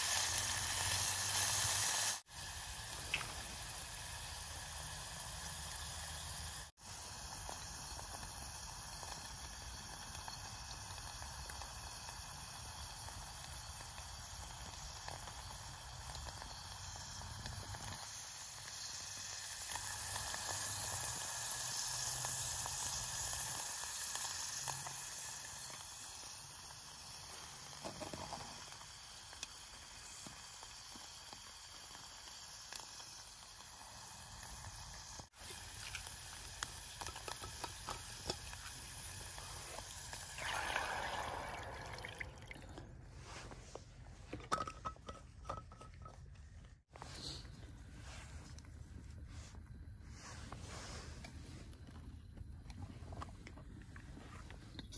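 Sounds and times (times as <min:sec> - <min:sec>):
stove burning with soft hiss: 0:00.0 - 0:54.9
water pouring into steel pot: 0:35.4 - 0:43.0.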